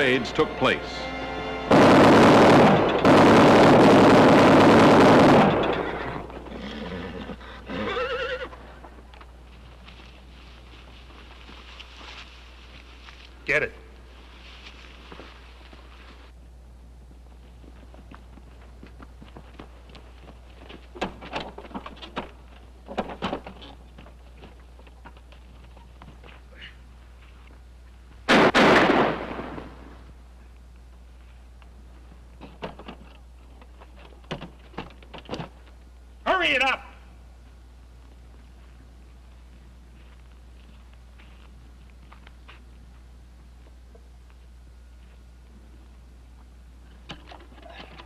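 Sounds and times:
gatling gun firing: 1.7 - 5.8, 28.3 - 29.6
horse whinnying: 5.5 - 8.6
scuffs and knocks of movement: 8.5 - 16.4, 17.0 - 28.2, 37.3 - 48.0
steady low hum: 8.5 - 48.0.

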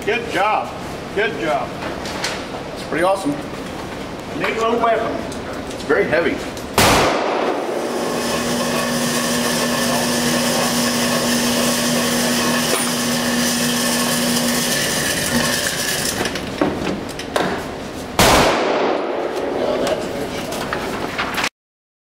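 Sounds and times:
target carrier motor hum: 7.2 - 16.6.

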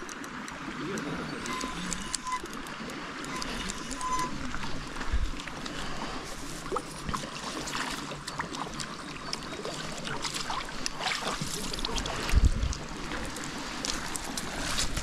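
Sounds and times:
net splashing in water: 9.8 - 12.3.

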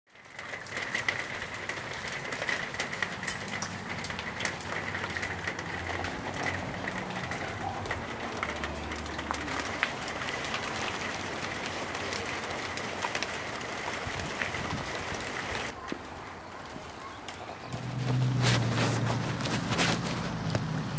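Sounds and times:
hailstones striking hard surfaces: 0.1 - 15.8
hard rain: 0.1 - 20.9.

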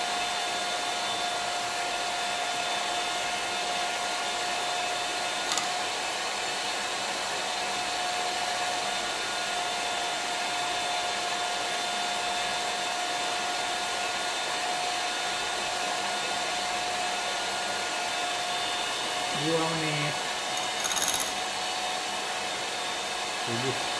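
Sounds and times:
electric hand mixer whirring: 0.0 - 23.9.

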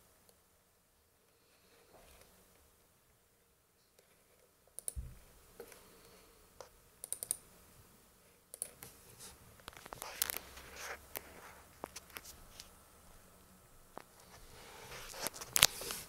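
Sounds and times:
soft low thump: 5.0 - 5.3.

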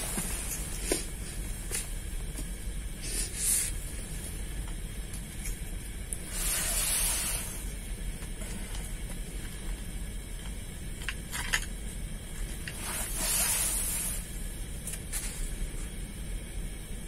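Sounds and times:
low outdoor rumble: 0.0 - 17.0
short hissing rustles: 6.2 - 7.7, 12.8 - 14.4.

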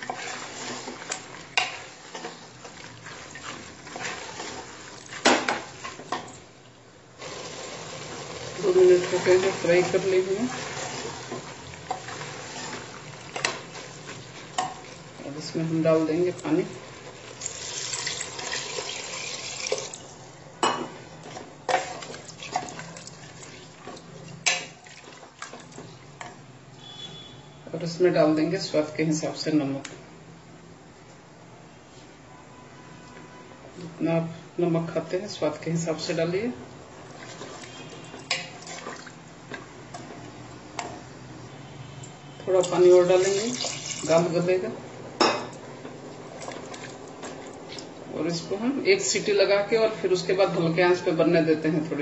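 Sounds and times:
spatula stirring liquid: 0.0 - 6.4, 7.2 - 15.2, 21.2 - 26.4, 37.0 - 40.2
low sizzle: 0.0 - 32.1, 34.7 - 52.0
water poured into metal pot: 17.3 - 20.1, 42.6 - 44.2.

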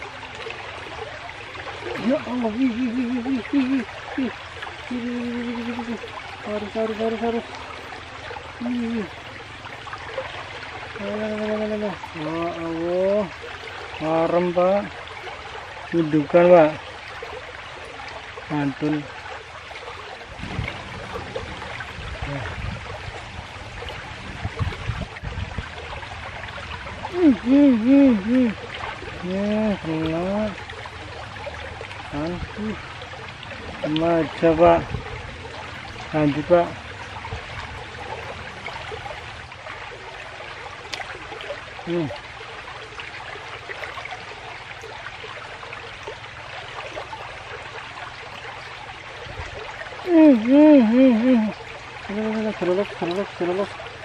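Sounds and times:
stream rushing over rocks: 0.0 - 54.0
low rumbles: 19.7 - 41.7.

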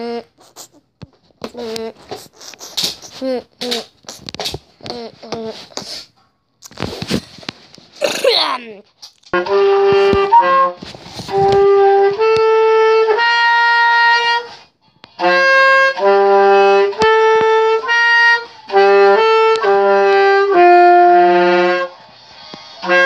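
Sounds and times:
saxophone slow melody: 9.4 - 14.6, 15.2 - 21.9.

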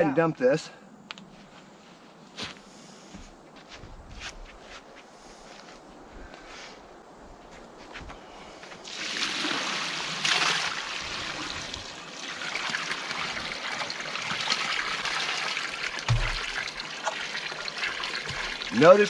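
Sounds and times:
water splashing onto soil: 8.8 - 19.0
dull thump: 16.1 - 16.5.

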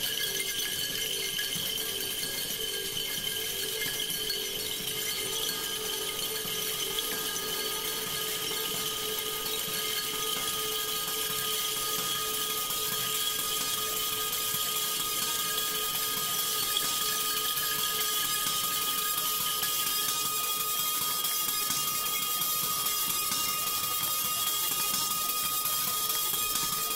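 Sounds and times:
metallic grinding noise: 0.0 - 18.7
steady ringing tones: 0.0 - 26.9.

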